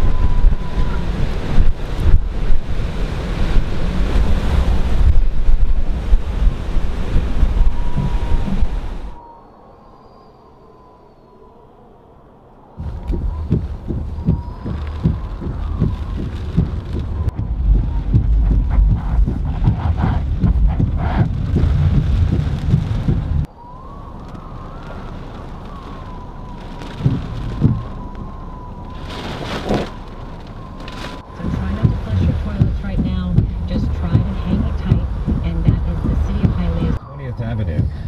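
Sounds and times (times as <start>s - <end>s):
heavy rain on vehicle: 0.0s - 9.2s, 12.8s - 37.0s
gusting wind rumble: 0.0s - 38.0s
buffeting thumps on vehicle: 12.8s - 23.5s, 26.8s - 28.4s, 30.8s - 37.0s
thin high whistling tone: 12.9s - 18.0s.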